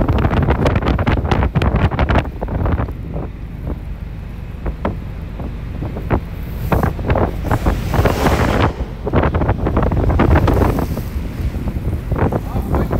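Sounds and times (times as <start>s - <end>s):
wind rumbling on microphone: 0.0s - 12.9s.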